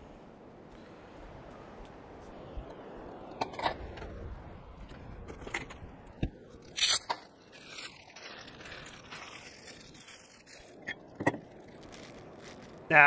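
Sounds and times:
herbs crinkling rustle: 0:07.5 - 0:13.0.

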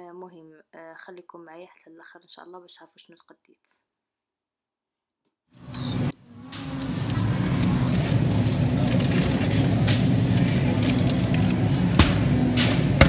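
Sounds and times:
freezer and ventilation hum: 0:05.6 - 0:13.0.

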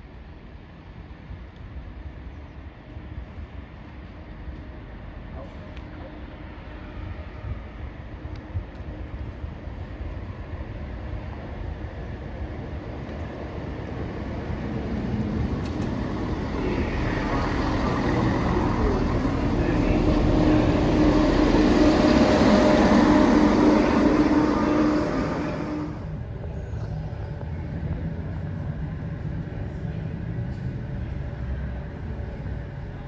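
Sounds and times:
train running: 0:00.0 - 0:33.0
steady hum: 0:16.2 - 0:26.4.

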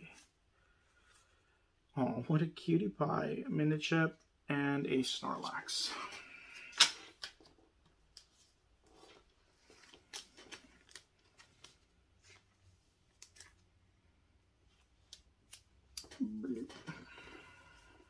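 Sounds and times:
cards being handled and stacked: 0:05.4 - 0:13.8, 0:14.6 - 0:17.0.

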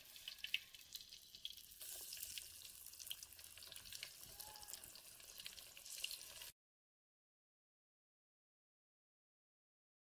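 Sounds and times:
fish deep-frying in oil: 0:00.0 - 0:06.6.

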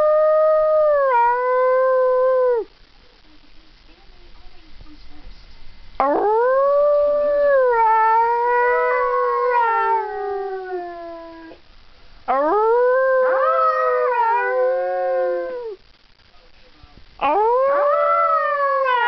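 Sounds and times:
dog howling: 0:06.0 - 0:11.6, 0:12.3 - 0:15.8, 0:17.2 - 0:19.0.

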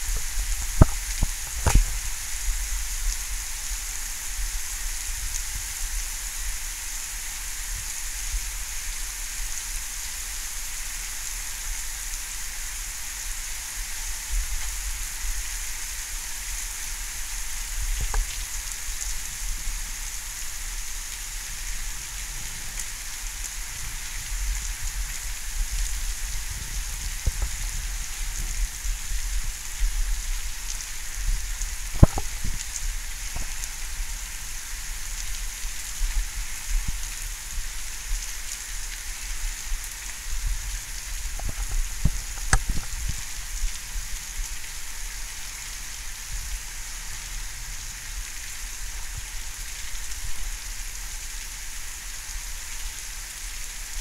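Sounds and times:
steady rain hiss: 0:00.0 - 0:54.0
faint taps: 0:32.0 - 0:32.3.

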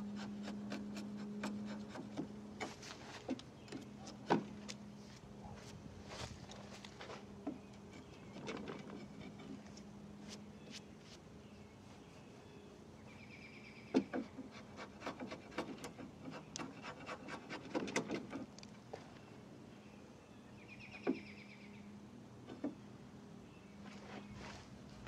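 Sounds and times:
chisel cutting and scraping wood: 0:00.0 - 0:04.7, 0:07.5 - 0:09.7, 0:13.9 - 0:18.5.

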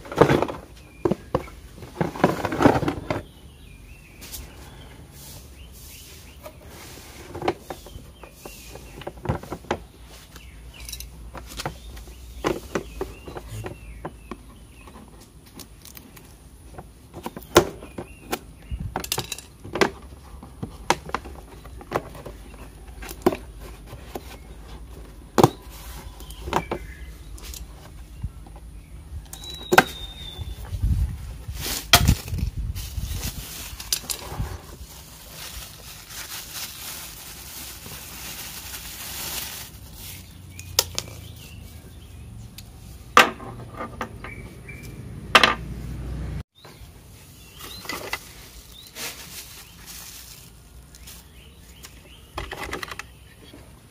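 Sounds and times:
plastic wrapping crinkling: 0:31.6 - 0:41.2, 0:47.6 - 0:51.8.

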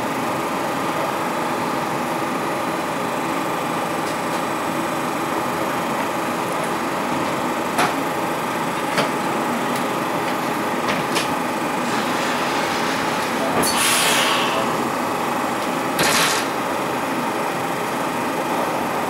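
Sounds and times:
hiss of air: 0:13.7 - 0:14.7.

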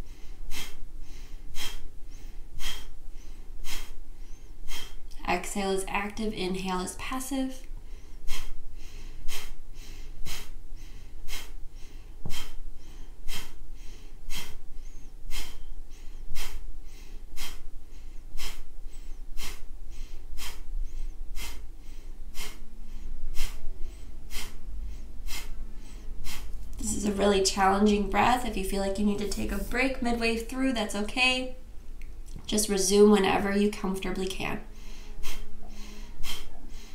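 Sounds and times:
forceful nasal exhales: 0:00.0 - 0:05.0, 0:07.9 - 0:26.6, 0:34.7 - 0:36.9.

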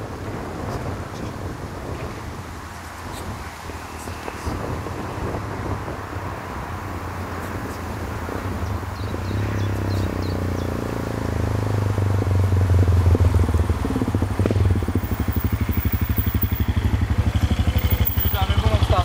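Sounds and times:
engine running: 0:11.0 - 0:19.0.

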